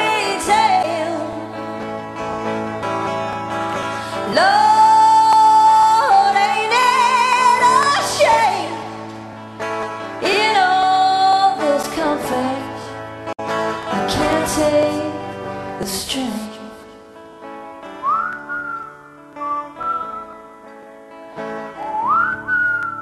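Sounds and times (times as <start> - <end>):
person singing: 0.0 - 2.4, 3.6 - 9.1, 10.1 - 17.0
guitar accompaniment: 0.0 - 23.0.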